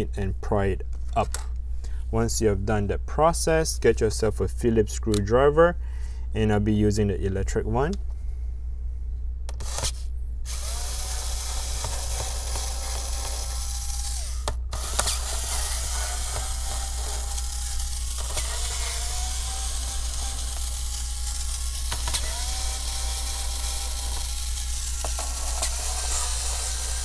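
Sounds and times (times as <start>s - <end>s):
electric screwdriver whining: 9.5s - 27.0s.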